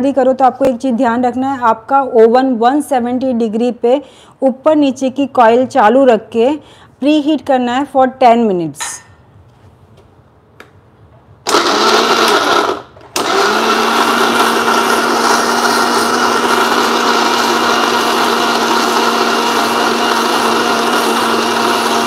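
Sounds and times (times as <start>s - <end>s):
mixer grinder grinding: 11.5s - 22.0s.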